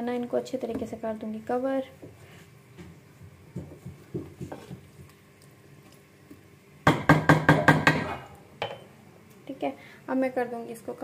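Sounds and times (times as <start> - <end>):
wooden spatula stirring curry: 1.9 - 6.4
loud knocks against a pan: 6.8 - 8.8.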